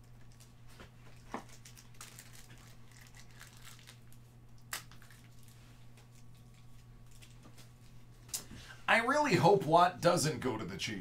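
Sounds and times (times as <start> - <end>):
foil wrappers crinkling: 0.0 - 8.0.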